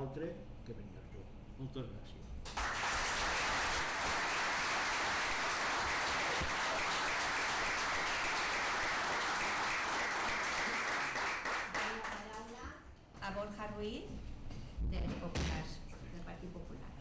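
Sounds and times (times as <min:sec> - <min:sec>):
crowd applauding: 0:02.6 - 0:12.6.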